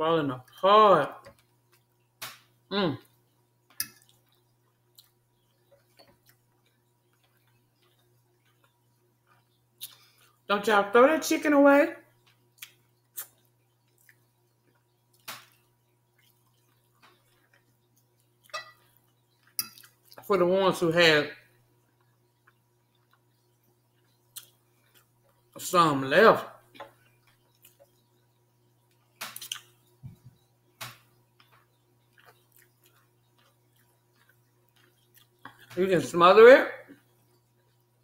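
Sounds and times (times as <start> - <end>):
wet chewing and smacking: 3.2 - 10.4, 12.2 - 20.3, 21.9 - 25.6, 26.6 - 30.4, 31.0 - 35.8
faint eating clicks: 3.6 - 10.4, 12.2 - 20.3, 30.7 - 35.8.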